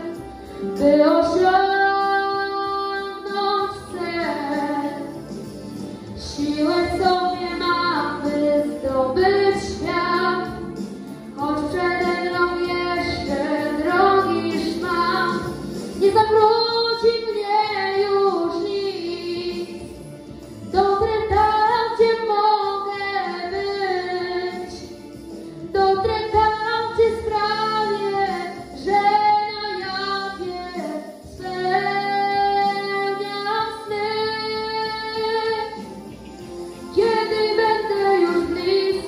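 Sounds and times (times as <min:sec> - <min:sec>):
boy singing into a microphone: 0:00.8 - 0:05.0, 0:11.4 - 0:19.8, 0:25.8 - 0:35.8.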